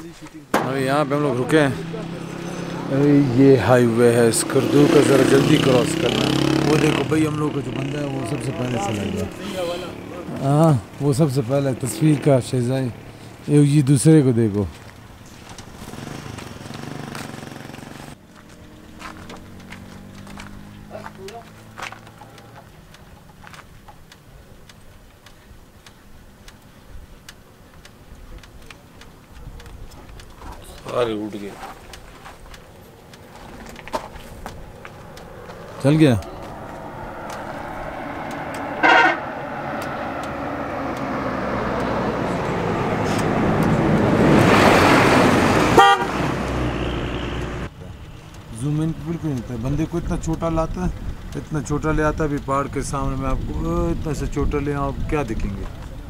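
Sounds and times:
light sharp clicks: 18.5 - 38.7
car horn toots: 38.8 - 39.6, 45.6 - 47.6.

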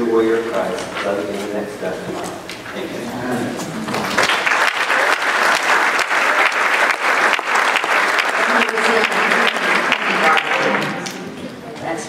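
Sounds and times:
audience applauding: 3.8 - 11.5.

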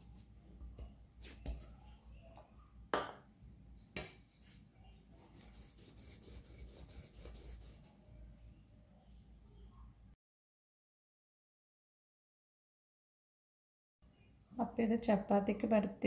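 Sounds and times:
dough being patted and shaped: 0.0 - 1.9, 5.2 - 7.9
sharp knocks on countertop: 3.0 - 3.2.

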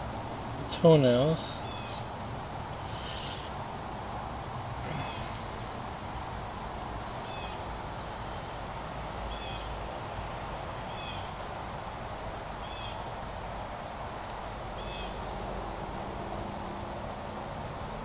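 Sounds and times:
faint high whine: 0.0 - 18.0
steady hiss: 0.0 - 18.0
bird chirping: 0.1 - 2.1.

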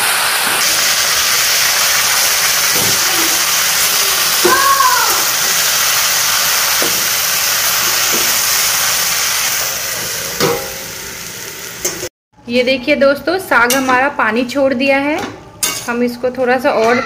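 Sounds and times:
leaves sizzling in oil: 0.0 - 12.1
short high cry: 4.0 - 5.3
spatula knocking pan: 8.0 - 8.4.

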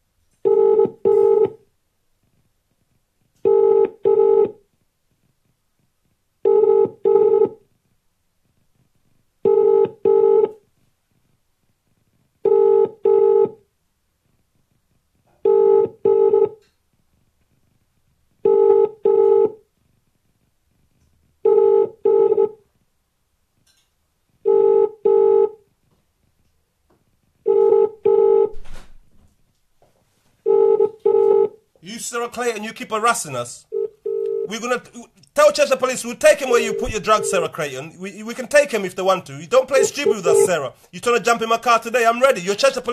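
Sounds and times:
telephone ringing tone: 0.4 - 1.6, 3.4 - 4.6, 6.4 - 7.6, 9.4 - 10.6, 12.4 - 13.6, 15.4 - 16.6, 18.4 - 19.6, 21.4 - 22.6, 24.4 - 25.6, 27.5 - 28.5, 30.4 - 31.6, 33.7 - 34.9, 36.2 - 38.0, 39.8 - 40.6.

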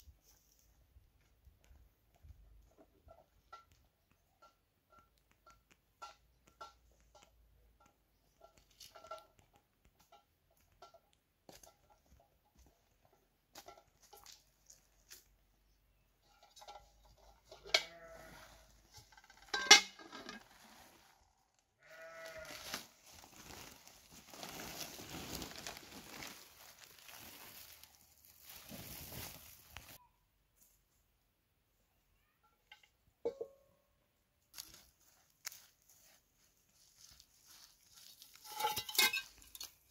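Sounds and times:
animal bleats: 17.7 - 18.7, 21.8 - 22.8
metal bowl clank: 19.5 - 20.4, 38.5 - 39.5
plastic sack rustling: 22.4 - 30.0.

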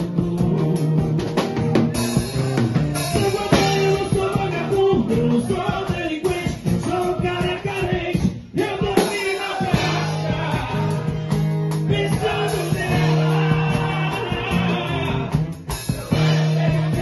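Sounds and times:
drum kit beat: 0.0 - 17.0
live band music: 0.0 - 17.0
person singing: 3.0 - 8.0, 11.9 - 17.0.

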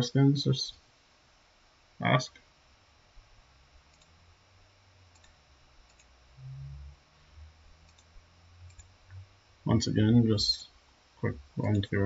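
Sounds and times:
short low hum: 2.6 - 12.0
faint computer mouse clicks: 5.1 - 6.1, 7.9 - 8.1.

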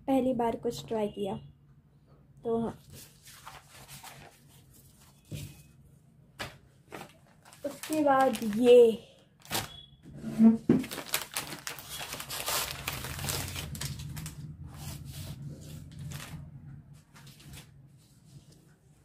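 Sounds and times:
plastic sheet crinkling: 2.8 - 5.2, 6.4 - 9.9, 10.7 - 16.5.

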